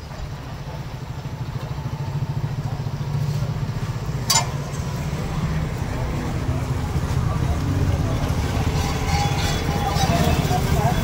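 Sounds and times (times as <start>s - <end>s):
engine idling rumble: 0.0s - 11.0s
sharp metallic clink: 4.2s - 4.9s.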